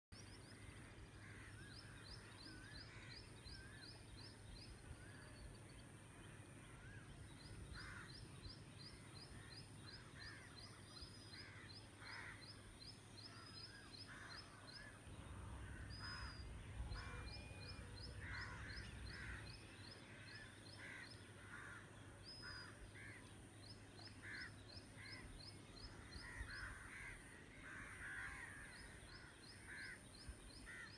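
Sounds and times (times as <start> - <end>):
birds calling: 6.3 - 30.9.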